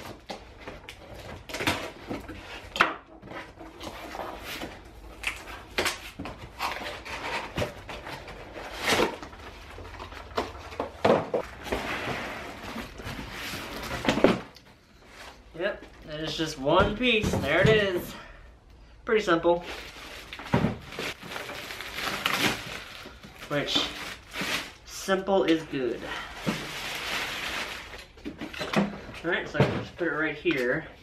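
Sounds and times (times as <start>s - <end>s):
plastic wrap rustling: 19.6s - 25.0s, 26.1s - 28.4s.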